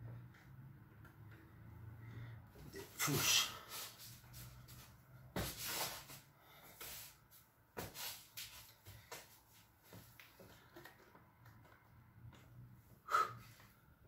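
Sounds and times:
man breathing sharply: 0:13.0 - 0:13.8.

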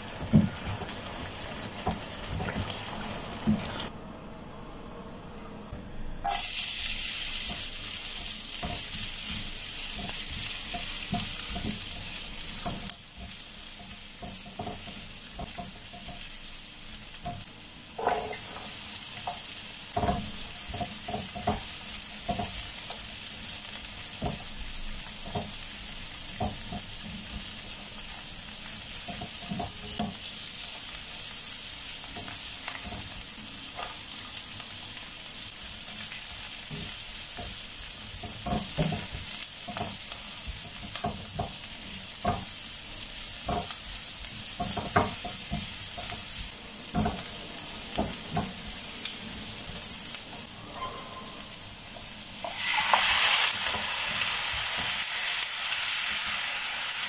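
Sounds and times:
food sizzling in hot oil: 0:00.0 - 0:03.9, 0:06.2 - 0:57.0
spatula scraping and tapping pan: 0:08.6 - 0:16.3, 0:18.0 - 0:23.1, 0:29.0 - 0:30.3, 0:36.7 - 0:42.6, 0:43.4 - 0:47.3.

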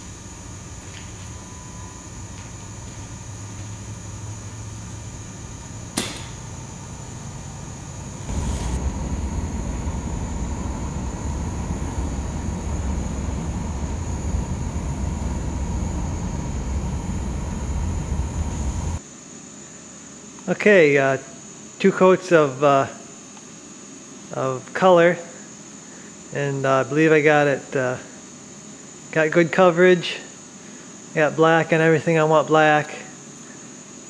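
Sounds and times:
deeper machine running noise: 0:00.0 - 0:19.0
shop machinery running: 0:00.0 - 0:19.0
faint high whine: 0:00.0 - 0:23.3
sharp click: 0:06.0 - 0:06.4.

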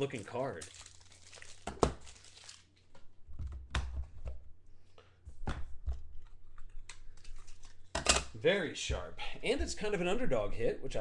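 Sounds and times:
plastic rustling: 0:00.0 - 0:03.0.

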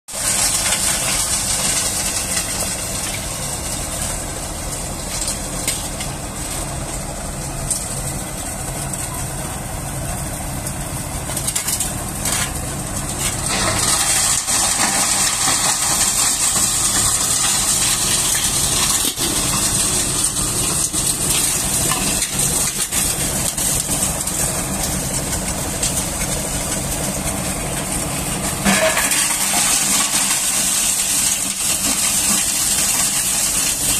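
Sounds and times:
coal being crushed: 0:00.1 - 0:33.9
tractor engine hum: 0:00.1 - 0:33.9
coal tipped into hopper: 0:11.4 - 0:33.8.

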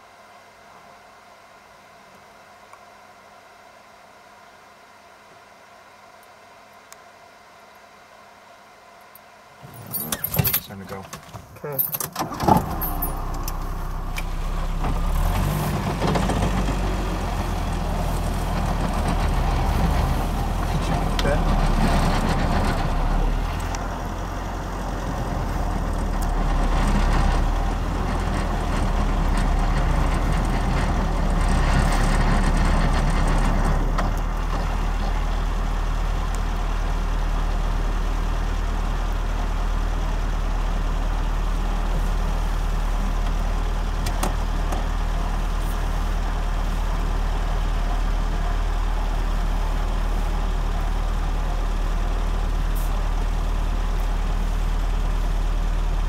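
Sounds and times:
engine idling: 0:11.6 - 0:56.0.

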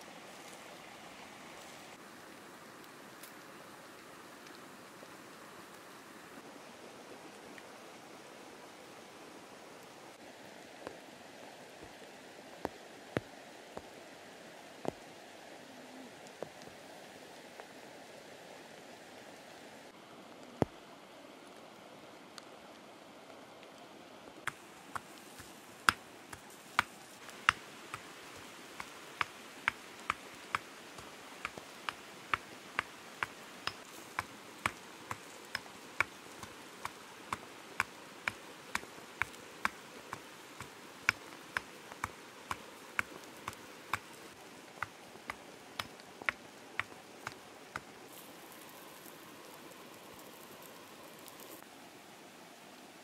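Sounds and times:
faint steady hiss: 0:00.0 - 0:53.0
campfire crackling and popping: 0:24.4 - 0:51.6.

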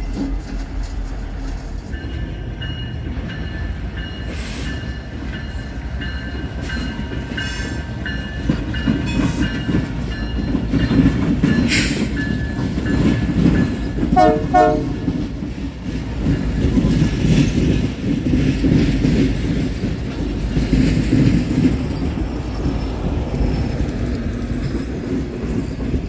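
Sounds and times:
diesel locomotive engine rumble: 0:00.0 - 0:26.0
sharp clanks from train: 0:00.0 - 0:26.0
locomotive bell ringing: 0:01.8 - 0:15.3.

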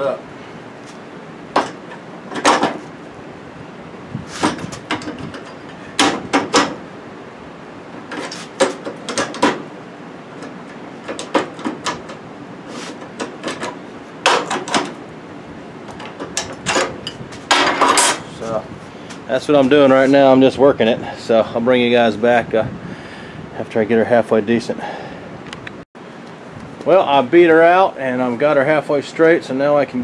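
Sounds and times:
metal clanks and knocks: 0:01.5 - 0:02.9, 0:04.4 - 0:06.8, 0:08.0 - 0:09.7, 0:10.4 - 0:12.2, 0:13.0 - 0:15.0, 0:15.9 - 0:18.3.

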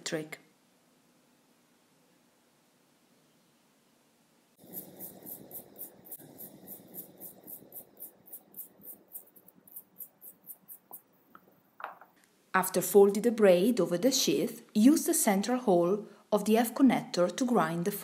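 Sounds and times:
small brush scrubbing cable: 0:04.6 - 0:11.6.

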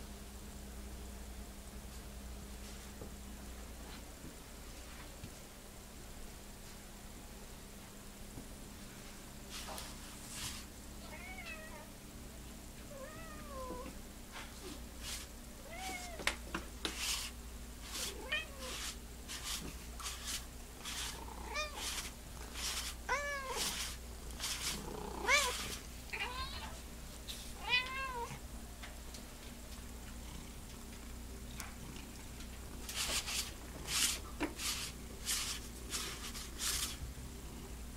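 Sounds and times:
cat meowing: 0:11.0 - 0:11.9, 0:23.1 - 0:23.8, 0:25.2 - 0:26.8, 0:27.6 - 0:28.4
lint roller rasping on fur: 0:16.8 - 0:25.9, 0:32.8 - 0:37.0.

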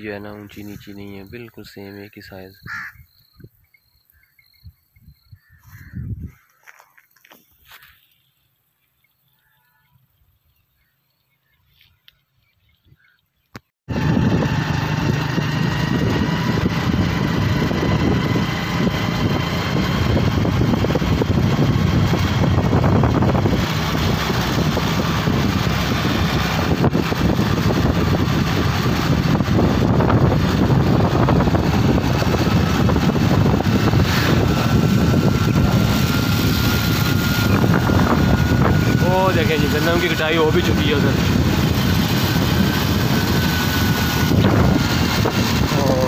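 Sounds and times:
vehicle engine running: 0:13.9 - 0:46.0.

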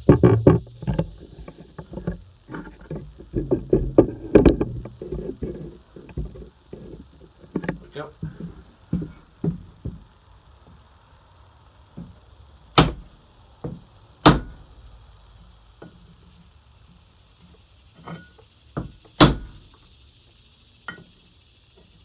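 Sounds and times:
hammer blows on wooden punch: 0:12.8 - 0:13.1.

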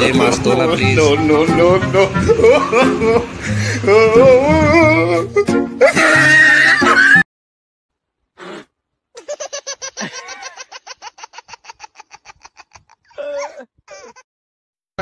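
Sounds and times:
person laughing hard: 0:02.3 - 0:03.4, 0:05.8 - 0:07.2, 0:09.2 - 0:14.3.

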